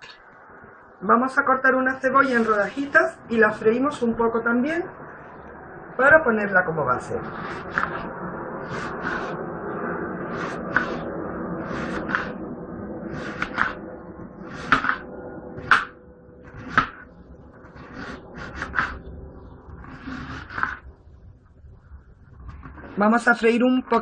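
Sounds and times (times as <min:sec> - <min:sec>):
knife slicing onion on board: 0:14.5 - 0:15.0.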